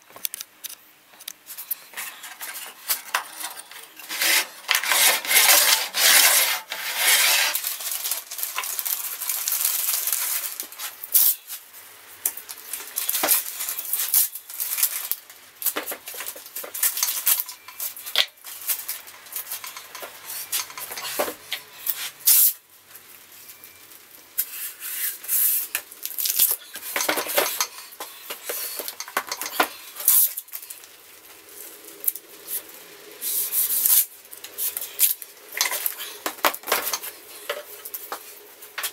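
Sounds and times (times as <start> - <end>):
rubbing and scraping on wood: 1.4 - 8.7
paper rustling: 1.4 - 11.7
masking tape pulled from roll: 4.0 - 11.6, 32.0 - 36.2.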